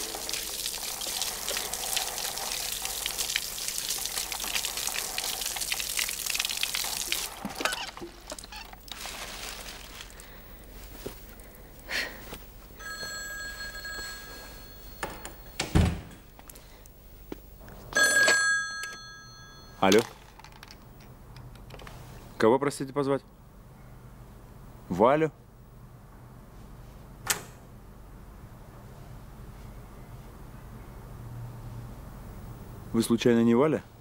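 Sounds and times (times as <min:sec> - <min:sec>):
shower water spraying: 0:00.0 - 0:10.2
telephone ringing: 0:12.8 - 0:15.7, 0:17.9 - 0:20.1.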